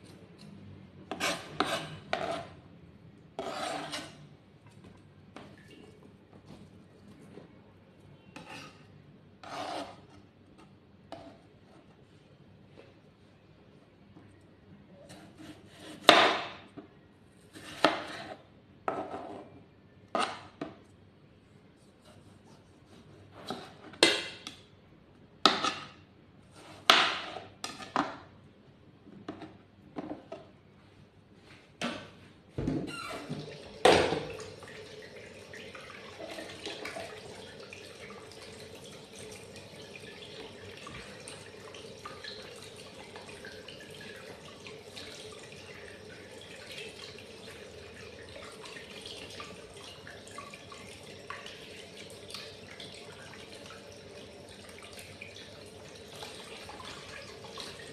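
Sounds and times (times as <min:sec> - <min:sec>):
running water: 0:32.6 - 0:57.9.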